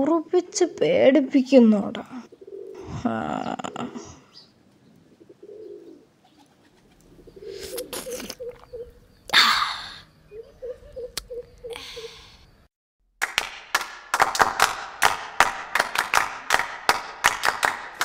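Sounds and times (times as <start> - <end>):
pigeon cooing: 2.1 - 4.5, 5.1 - 12.3
breathy burst of voice: 11.7 - 12.5.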